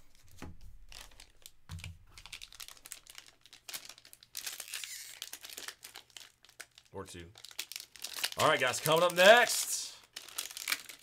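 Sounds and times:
foil wrapper crinkling: 0:00.8 - 0:11.0.

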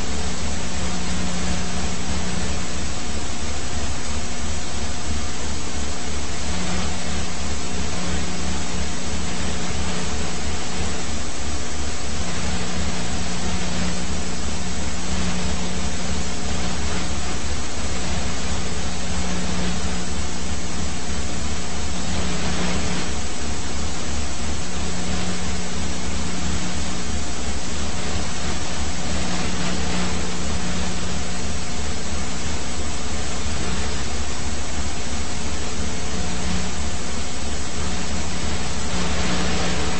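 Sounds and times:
helicopter rotor noise: 0:00.0 - 0:39.9.

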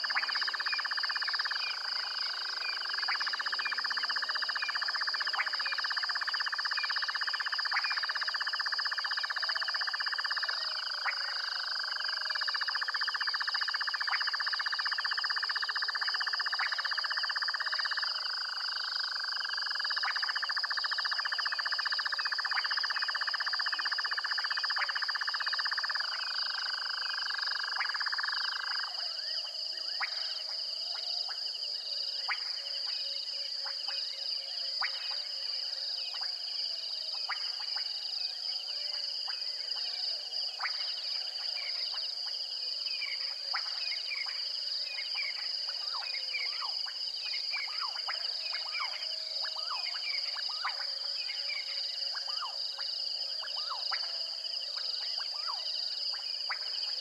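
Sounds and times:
frogs clicking and chirping: 0:00.0 - 0:31.4, 0:43.0 - 0:57.0.

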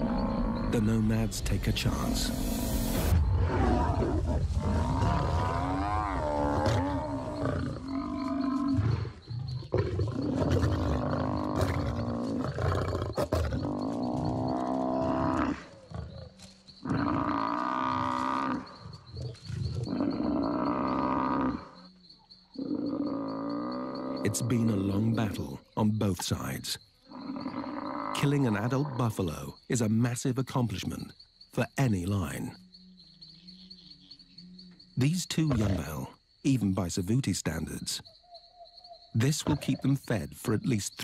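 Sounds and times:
lions growling: 0:00.0 - 0:01.1, 0:01.9 - 0:21.9, 0:22.6 - 0:25.2, 0:35.0 - 0:36.0.

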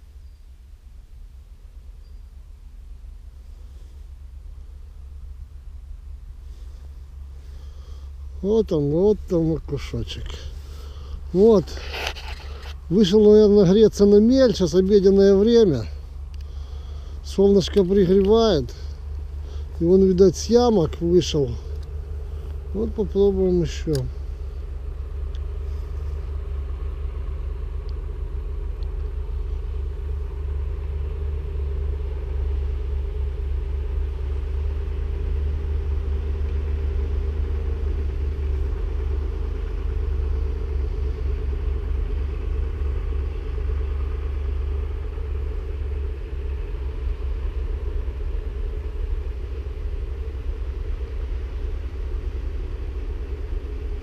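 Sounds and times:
faint wavering hum: 0:00.0 - 0:54.0
low rumble: 0:00.0 - 0:54.0.

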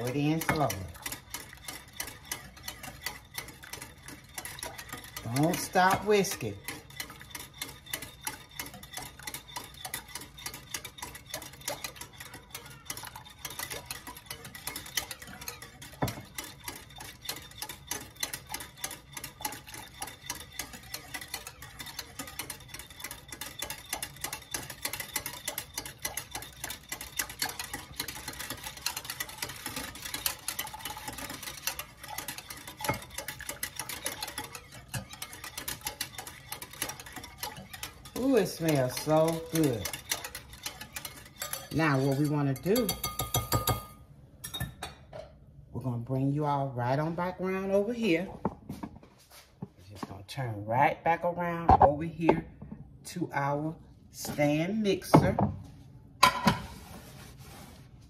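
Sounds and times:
whisk clicking against glass bowl: 0:00.0 - 0:44.9.

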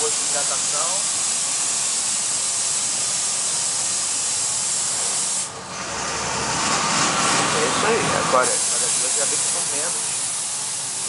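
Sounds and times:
hiss inside moving bus: 0:00.0 - 0:11.0.

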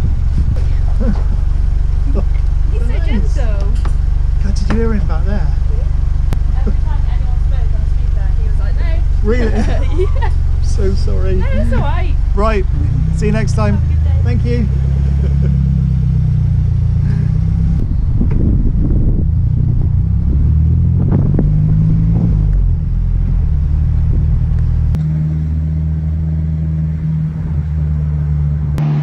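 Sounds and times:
wind buffeting microphone: 0:00.0 - 0:01.6, 0:17.1 - 0:25.0
car engine and road noise: 0:00.0 - 0:29.0.

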